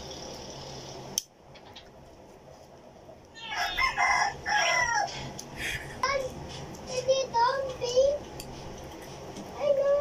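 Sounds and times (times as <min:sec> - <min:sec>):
rooster crowing: 0:03.4 - 0:05.3.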